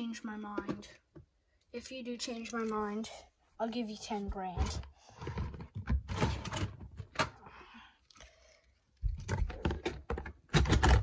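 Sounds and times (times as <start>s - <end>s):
plastic drawers rattling: 4.6s - 7.3s, 9.2s - 11.0s.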